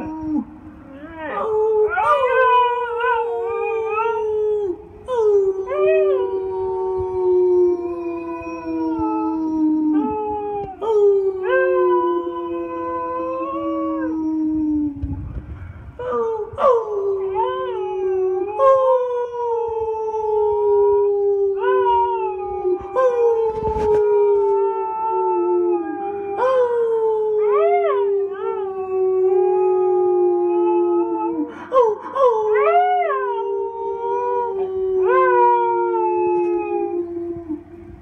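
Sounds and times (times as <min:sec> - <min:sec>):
dog howling: 0:16.0 - 0:37.7.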